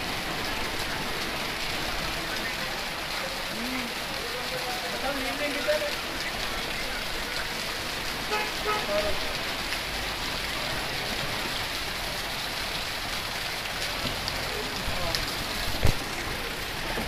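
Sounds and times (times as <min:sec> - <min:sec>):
heavy rain on standing water: 0:00.0 - 0:17.0.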